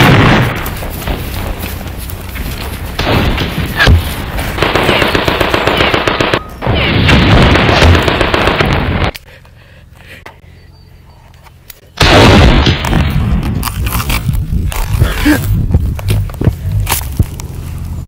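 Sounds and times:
machine-gun fire: 0.0s - 1.2s, 3.0s - 9.1s, 12.0s - 13.6s.

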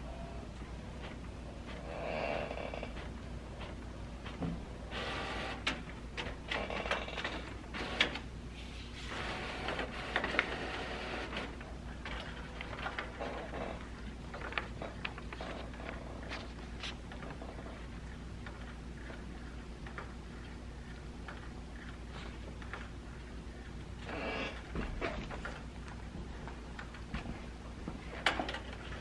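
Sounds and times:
inkjet printer running: 4.9s - 5.7s, 7.7s - 8.2s, 9.1s - 11.6s
paper rustling and crinkling: 14.2s - 17.7s.

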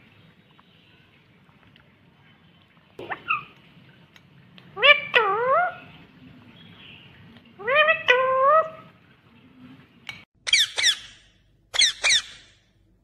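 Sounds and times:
parakeet calling: 10.5s - 12.6s.

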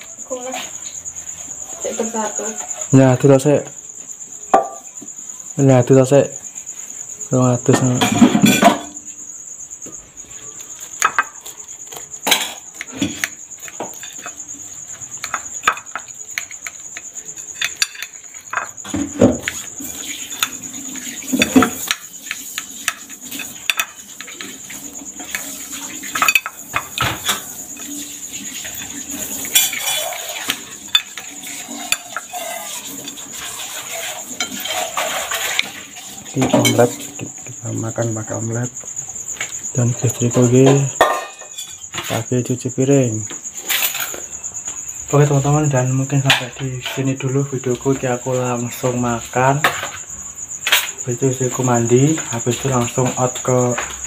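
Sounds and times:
metal spoon clinking on plate: 17.4s - 18.8s, 25.2s - 27.4s, 28.7s - 33.5s.

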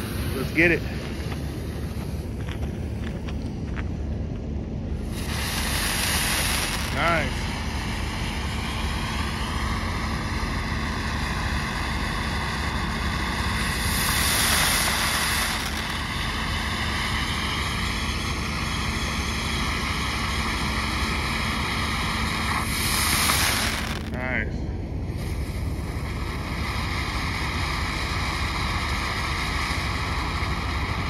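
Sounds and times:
fountain firework hissing: 0.0s - 3.0s, 4.9s - 24.4s, 25.0s - 31.0s.

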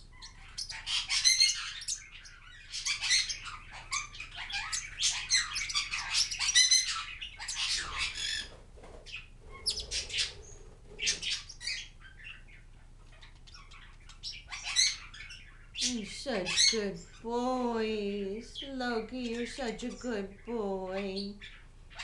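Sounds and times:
parrots chirping and squawking: 0.0s - 17.3s, 18.5s - 22.0s.

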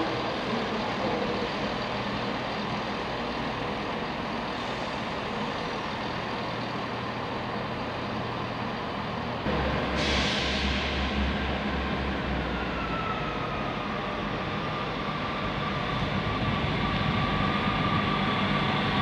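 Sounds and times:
diesel train engine hum: 0.0s - 19.0s
train rushing noise: 0.0s - 19.0s.

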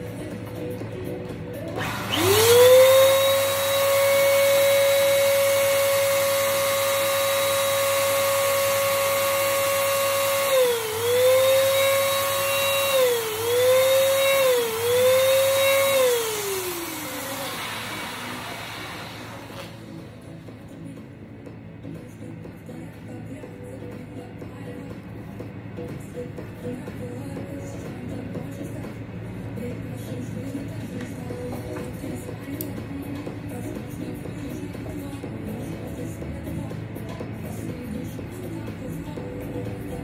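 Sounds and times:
electric balloon pump whining: 1.7s - 20.2s.

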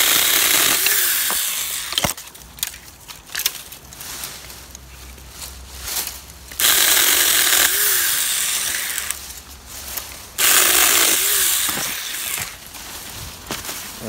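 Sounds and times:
electric chainsaw cutting stems: 0.0s - 2.8s, 6.5s - 9.3s, 10.4s - 12.7s.

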